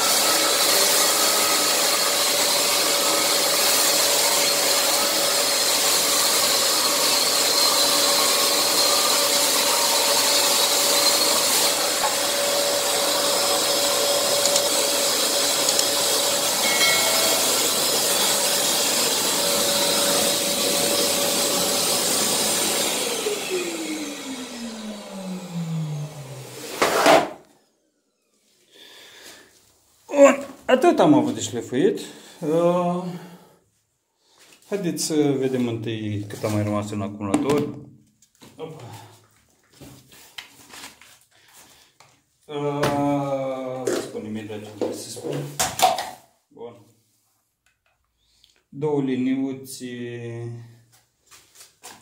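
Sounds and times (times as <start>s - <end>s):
drywall sander running: 0.0s - 29.5s.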